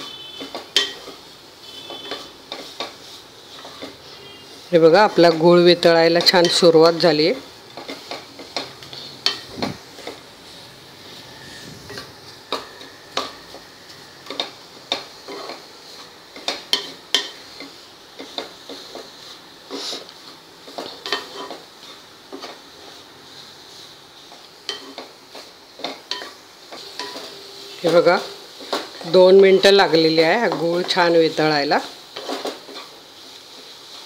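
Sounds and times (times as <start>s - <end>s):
spatula stirring and scraping pan: 0.0s - 34.0s.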